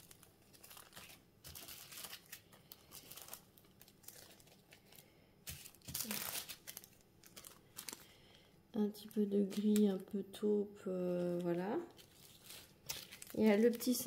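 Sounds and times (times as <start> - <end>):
plastic bags crinkling: 0.0 - 10.2, 11.1 - 14.0.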